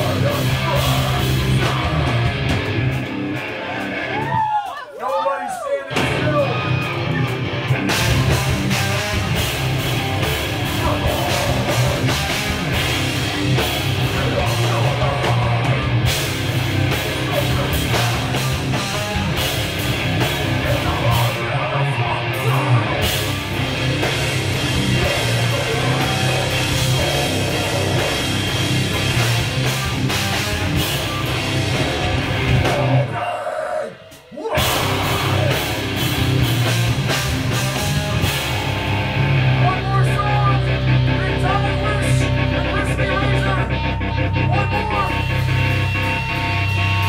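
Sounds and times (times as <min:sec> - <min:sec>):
distorted electric guitar: 0:00.0 - 0:04.7, 0:05.9 - 0:47.0
bass guitar: 0:00.0 - 0:05.0, 0:05.9 - 0:47.0
drum kit: 0:00.0 - 0:05.2, 0:05.9 - 0:33.3, 0:33.9 - 0:47.0.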